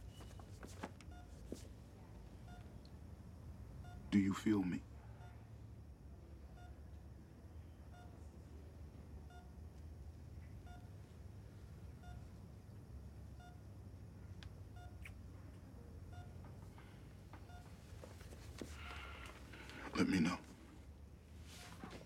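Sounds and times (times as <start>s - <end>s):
patient monitor beeping: 0.0s - 1.6s, 2.4s - 2.9s, 3.7s - 5.5s, 6.4s - 7.0s, 7.6s - 8.3s, 9.2s - 9.7s, 10.4s - 12.4s, 13.2s - 13.7s, 14.6s - 15.2s, 15.8s - 20.6s
low room hum: 0.0s - 22.0s.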